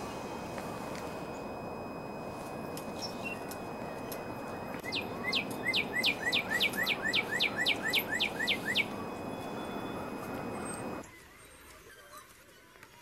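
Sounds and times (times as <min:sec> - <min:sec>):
low background rush: 0:00.0 - 0:11.0
bird singing whistled notes: 0:02.6 - 0:11.0.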